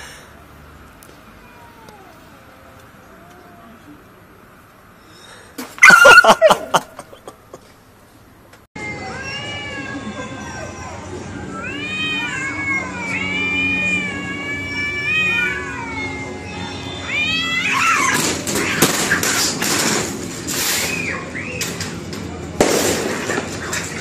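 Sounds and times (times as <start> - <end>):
cats yowling and screeching: 1.4 - 2.4, 5.8 - 6.6, 8.8 - 19.6.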